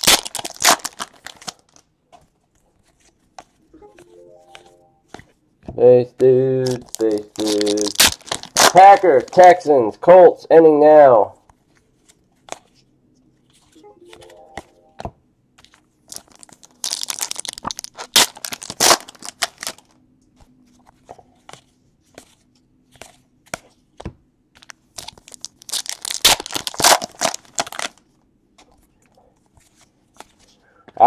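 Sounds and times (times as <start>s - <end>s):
trading cards rustling: 0.0s - 5.4s, 6.5s - 9.6s, 11.5s - 23.8s.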